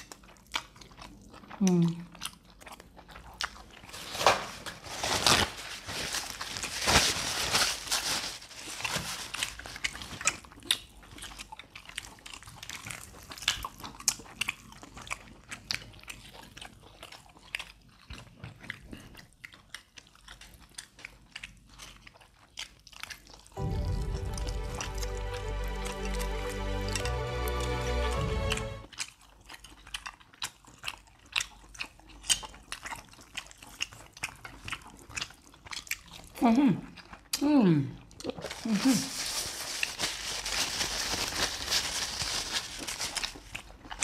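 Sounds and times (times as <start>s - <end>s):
person chewing and biting chicken: 0.0s - 4.8s, 8.6s - 23.6s, 28.9s - 36.3s.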